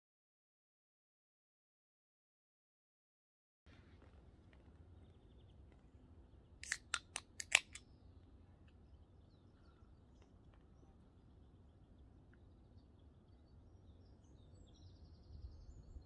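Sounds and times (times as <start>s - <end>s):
drink can popping open: 6.6s - 7.8s
drink can ring-pull clicking: 6.6s - 7.8s.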